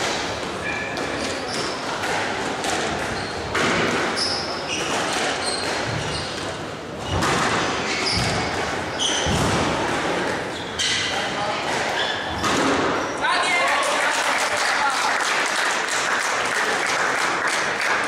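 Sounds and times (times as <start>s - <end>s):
shoe squeaks on wooden floor: 0.6s - 1.8s, 3.0s - 9.4s, 10.4s - 11.2s, 11.9s - 13.2s
squash ball knocks: 7.1s - 10.4s.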